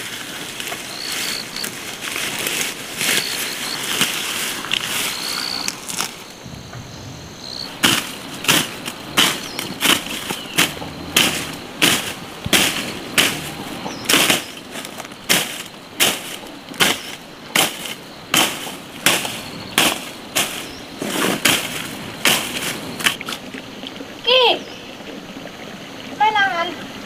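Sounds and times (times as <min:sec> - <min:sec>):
hand tool chopping into soil: 0:07.8 - 0:23.4.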